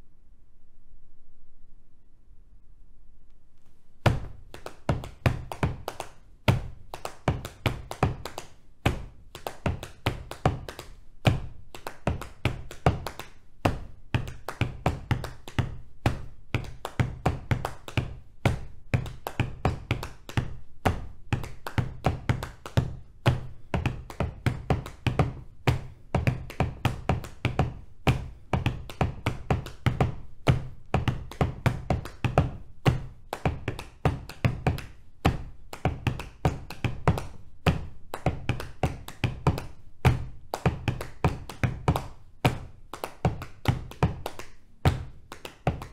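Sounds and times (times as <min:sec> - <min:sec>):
feet tapping the floor: 0:04.0 - 0:45.9
hands tapping on thighs: 0:04.0 - 0:45.9.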